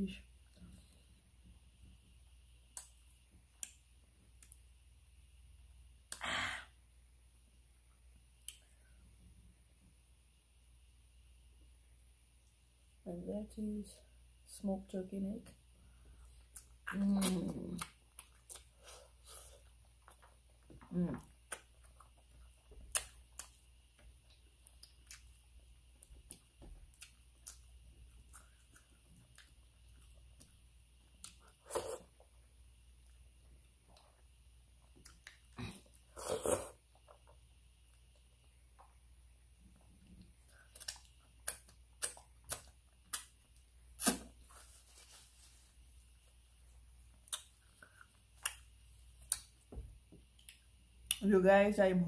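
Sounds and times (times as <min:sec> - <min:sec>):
wet eating by hand: 0:16.2 - 0:51.2
chewing: 0:17.8 - 0:32.4, 0:39.7 - 0:44.2, 0:47.1 - 0:49.6.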